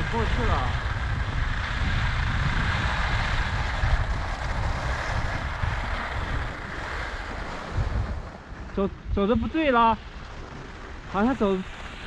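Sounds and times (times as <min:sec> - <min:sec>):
skis sliding on snow: 0:00.0 - 0:08.7
wind buffeting microphone: 0:00.0 - 0:12.0.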